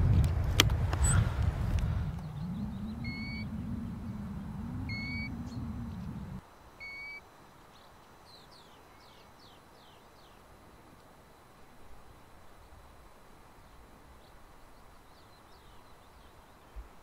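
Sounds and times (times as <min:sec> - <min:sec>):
low rumble: 0:00.0 - 0:06.4
plover plaintive whistles: 0:02.0 - 0:07.2.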